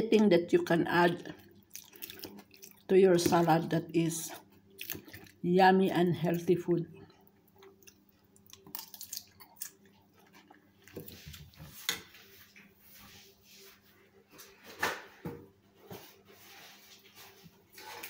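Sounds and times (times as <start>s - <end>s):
soft chewing: 1.4s - 2.9s, 4.4s - 5.4s, 7.0s - 12.7s.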